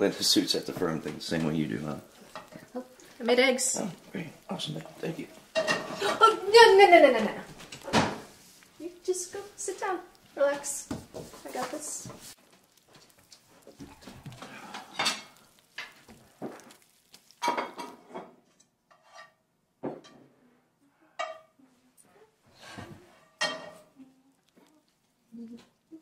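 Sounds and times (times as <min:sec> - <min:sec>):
utensil scraping in frying pan: 0:00.0 - 0:19.4, 0:22.5 - 0:24.6
crockery clinking: 0:00.3 - 0:06.6, 0:13.9 - 0:19.4, 0:23.3 - 0:23.9.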